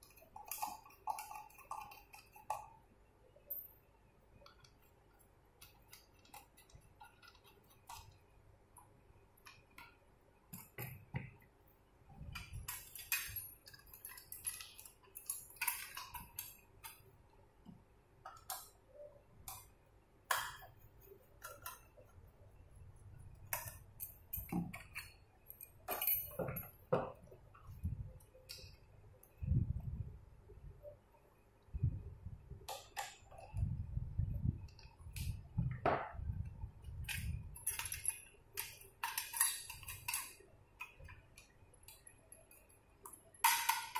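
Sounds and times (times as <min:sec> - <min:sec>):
metal lock parts clinking: 0:12.3 - 0:17.0, 0:23.5 - 0:26.9, 0:37.0 - 0:43.9.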